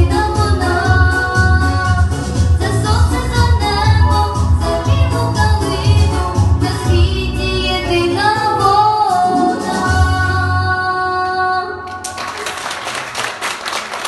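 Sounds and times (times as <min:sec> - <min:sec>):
backing track with bass beat: 0:00.0 - 0:08.5
girl singing into a microphone: 0:00.0 - 0:12.0
applause: 0:11.9 - 0:14.0.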